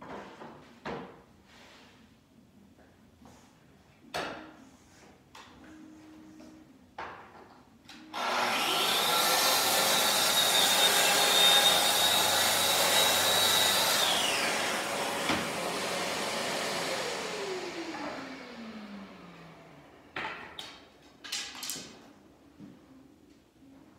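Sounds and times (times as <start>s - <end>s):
track saw whining and cutting: 8.1s - 19.7s
dust extractor running: 8.2s - 19.8s.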